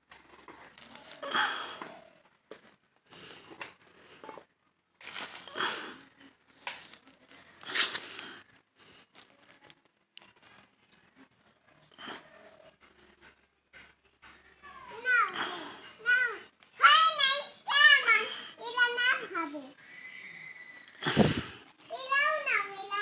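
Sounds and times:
plastic sack rustling and crinkling: 0:05.0 - 0:08.2.

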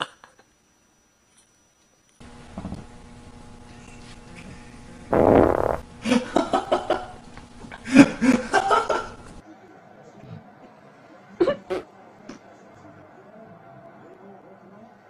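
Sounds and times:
puppy fart: 0:05.1 - 0:05.8
people laughing: 0:06.0 - 0:09.2.

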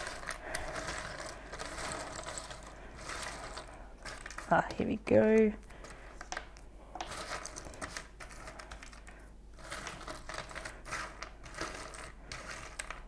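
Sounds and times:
puzzle pieces clicking and rustling: 0:00.0 - 0:13.0.

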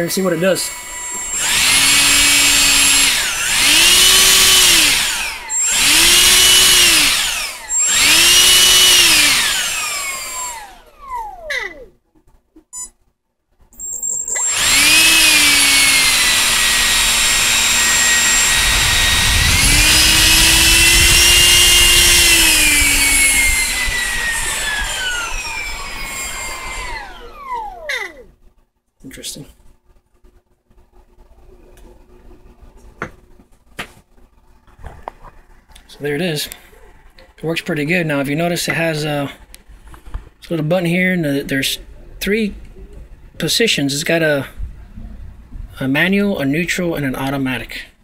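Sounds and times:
ducted fan motor whining: 0:00.0 - 0:11.6, 0:13.8 - 0:28.1.

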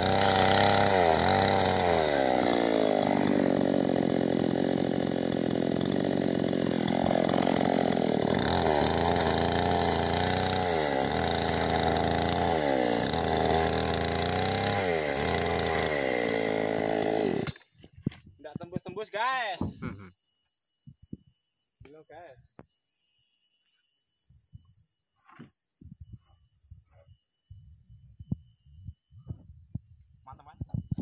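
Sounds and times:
chainsaw cutting log: 0:00.0 - 0:17.7.

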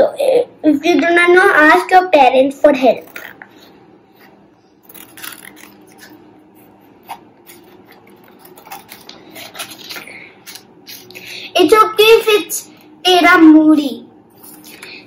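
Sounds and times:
paper rustling: 0:07.5 - 0:11.0.

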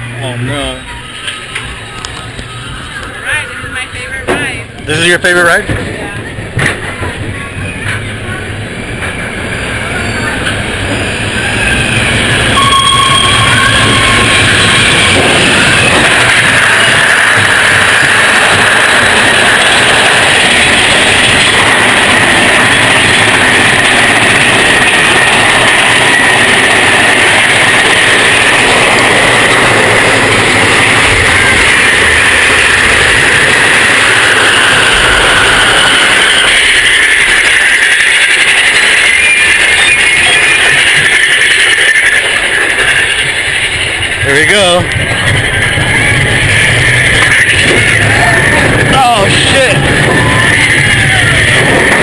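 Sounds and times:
high whine: 0:00.0 - 0:52.0
roller coaster rattle and rumble: 0:00.0 - 0:52.0.

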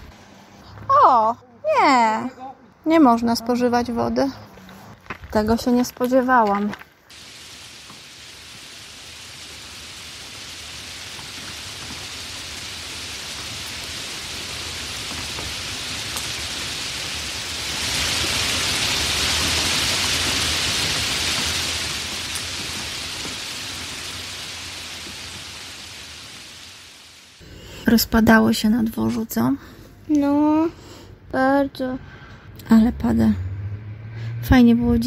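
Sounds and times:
steady rain falling: 0:07.1 - 0:27.4.

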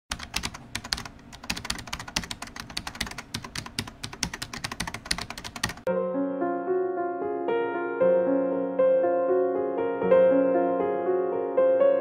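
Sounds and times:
typing on computer keyboard: 0:00.1 - 0:05.9
piano music: 0:04.3 - 0:12.0.

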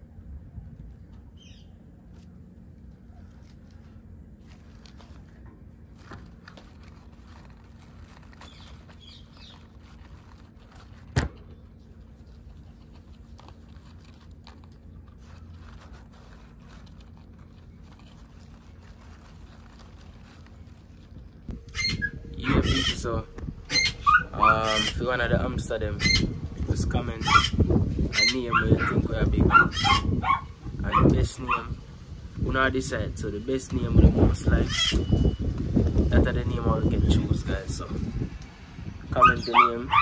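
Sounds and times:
low steady hum: 0:00.0 - 0:39.2
paper rustling and scratching: 0:02.0 - 0:21.5.

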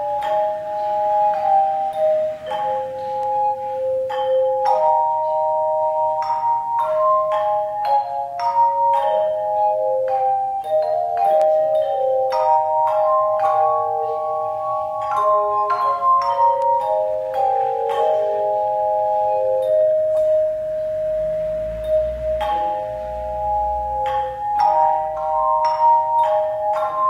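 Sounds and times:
handbell choir ringing melody: 0:00.0 - 0:27.0.

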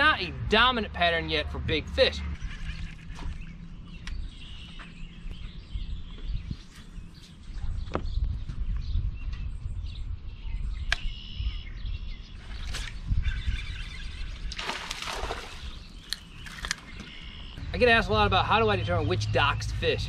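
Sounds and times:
birds chirping: 0:00.0 - 0:20.0
wind on microphone: 0:01.6 - 0:16.0.

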